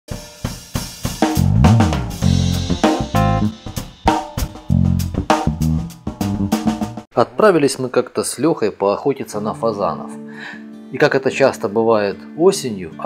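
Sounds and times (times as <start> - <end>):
drum kit beat: 0.1 - 7.1
low bass notes: 1.4 - 3.6, 4.6 - 7.0.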